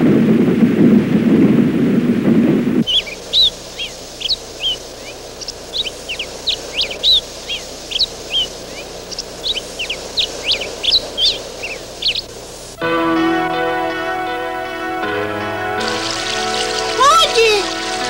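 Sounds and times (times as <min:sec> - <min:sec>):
small birds chirping: 0:02.8 - 0:12.8.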